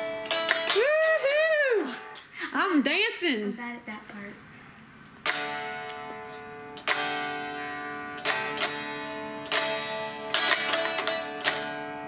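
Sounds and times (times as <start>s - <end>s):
electric guitar chord strums: 5.1s - 12.0s.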